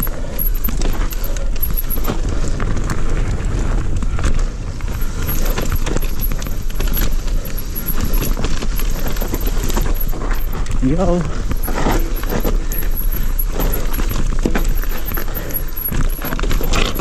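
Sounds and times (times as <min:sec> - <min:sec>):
bike knocking and rattling: 0:00.0 - 0:17.0
steady low rumble: 0:00.0 - 0:17.0
tyres rolling over dirt trail: 0:00.0 - 0:17.0.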